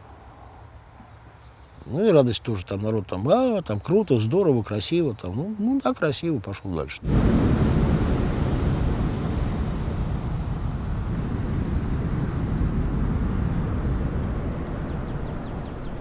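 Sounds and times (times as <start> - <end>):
deep rumbling noise: 7.0 - 16.0.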